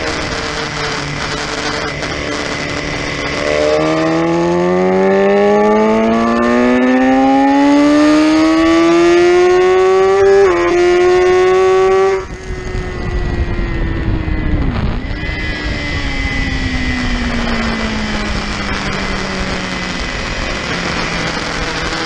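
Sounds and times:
motorcycle engine: 0.0s - 22.0s
wind rush: 10.9s - 22.0s.

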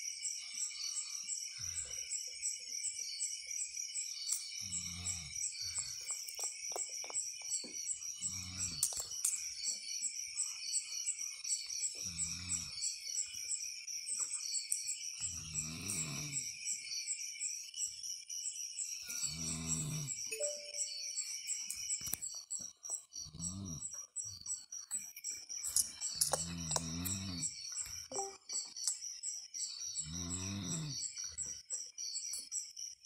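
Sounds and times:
high chirping: 18.8s - 23.2s, 24.3s - 31.3s.

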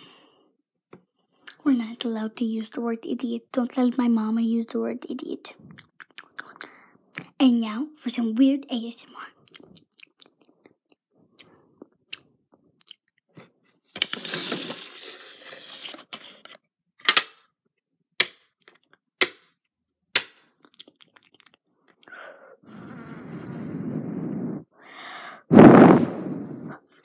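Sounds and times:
sharp mouth clicks: 5.6s - 7.3s, 9.5s - 10.8s
wet mouth clicks and smacks: 5.7s - 7.3s, 9.5s - 13.2s, 20.6s - 22.2s
breathy rush of air: 22.7s - 26.8s.

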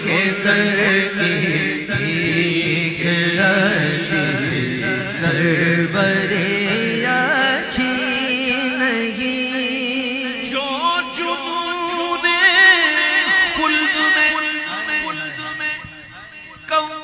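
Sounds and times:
man chanting devotional song: 0.0s - 17.0s
vocal drone: 0.0s - 17.0s.

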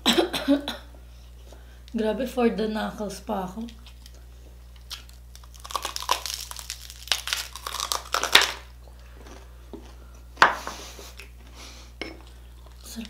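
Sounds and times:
crispy pork skin crackling: 3.6s - 8.8s.

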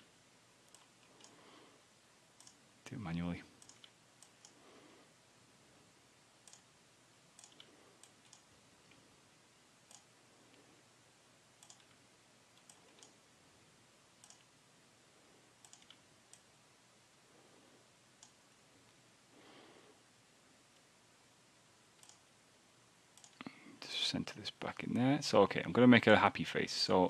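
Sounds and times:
computer mouse clicks: 0.7s - 1.4s, 2.4s - 2.6s, 3.6s - 4.6s, 6.4s - 6.7s, 7.4s - 9.0s, 9.9s - 10.1s, 11.6s - 13.2s, 14.2s - 14.5s, 15.6s - 16.5s, 22.0s - 22.3s, 23.2s - 23.5s.

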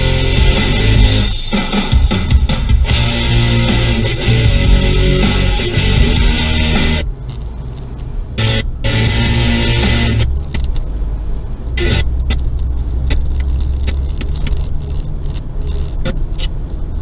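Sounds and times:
music: 0.0s - 7.1s, 8.4s - 10.3s
car engine and tyre rumble: 0.0s - 17.0s
light clicks and rattles: 7.2s - 8.2s, 12.2s - 17.0s.

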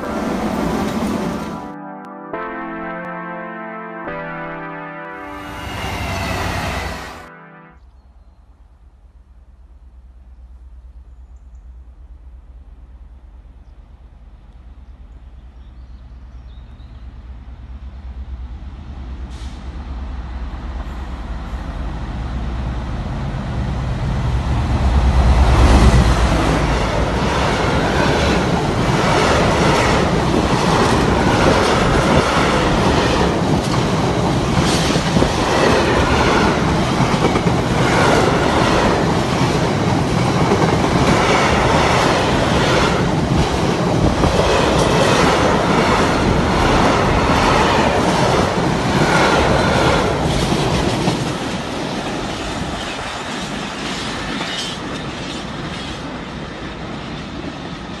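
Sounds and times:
freight train rumbling past: 0.0s - 1.8s, 5.2s - 7.3s, 8.0s - 58.0s
wheels clickety-clack on rail: 16.4s - 58.0s.

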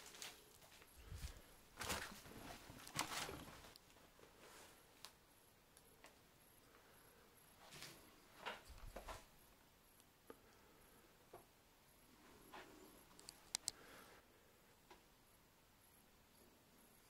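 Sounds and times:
faint rustles: 0.0s - 5.1s
faint clicks: 13.1s - 13.9s.

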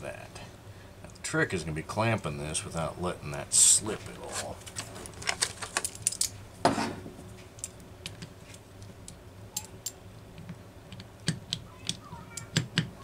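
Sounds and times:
metal parts clicking and clinking: 5.2s - 6.4s, 7.6s - 10.0s.

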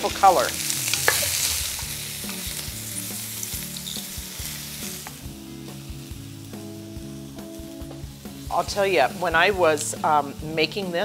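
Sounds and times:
vegetables sizzling in hot oil: 0.0s - 11.0s.

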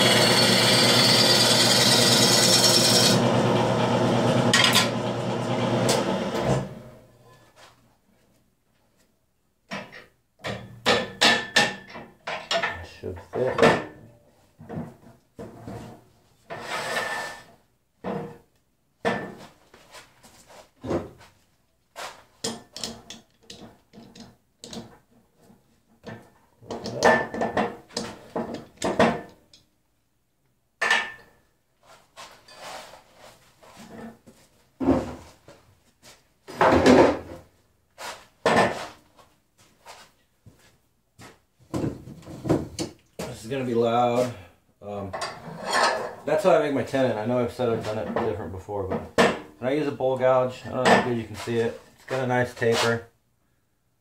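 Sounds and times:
wood and metal knocks and clunks: 9.7s - 16.0s, 26.0s - 29.4s, 36.5s - 37.5s, 41.7s - 43.3s.

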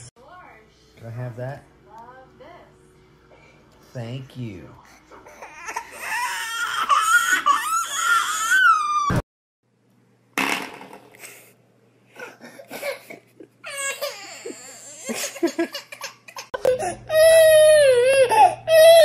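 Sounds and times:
baby crying loudly: 5.3s - 9.2s, 13.6s - 15.2s, 15.9s - 19.0s.

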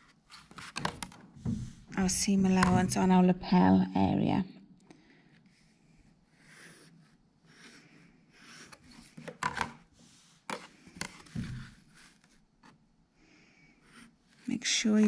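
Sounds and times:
ruler rubbing and knocking: 0.0s - 2.9s, 10.5s - 12.3s.

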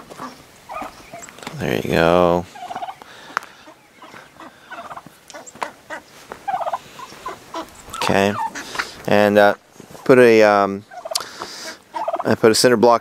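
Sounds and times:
footsteps on dry rocky dirt: 0.0s - 9.1s
warbling bird calls: 0.0s - 10.0s.

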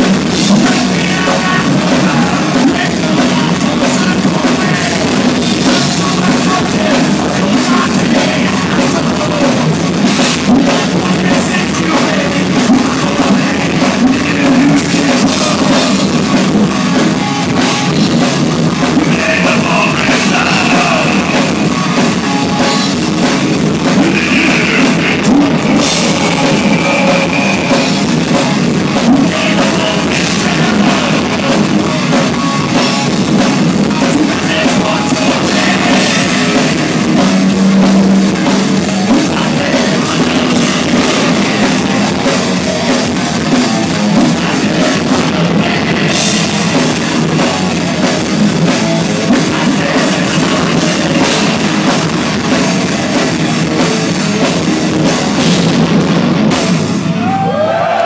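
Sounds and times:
distorted electric guitars: 0.0s - 58.0s
drum kit with cymbals: 0.0s - 58.0s.

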